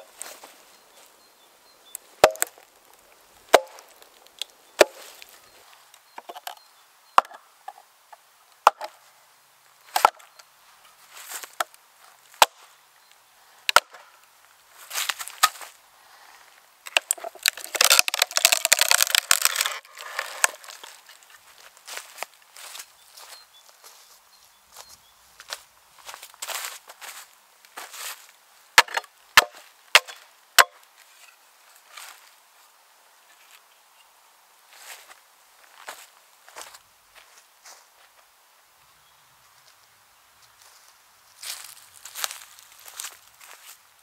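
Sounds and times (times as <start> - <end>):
wood fibres crackling and tearing: 1.9 - 6.5, 16.8 - 23.3
wooden maul knocking on log: 3.5 - 3.8.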